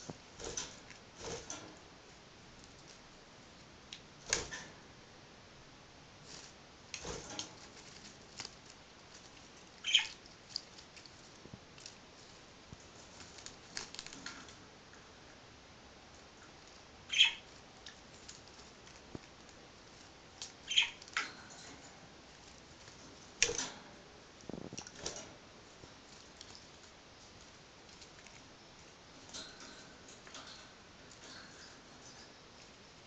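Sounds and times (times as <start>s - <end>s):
bird rustling in lettuce leaves: 6.2s - 14.6s, 16.6s - 23.5s.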